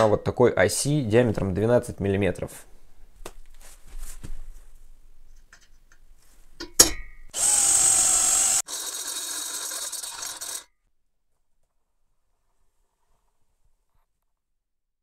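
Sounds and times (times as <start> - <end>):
cordless drill boring through steel: 7.3 - 10.7.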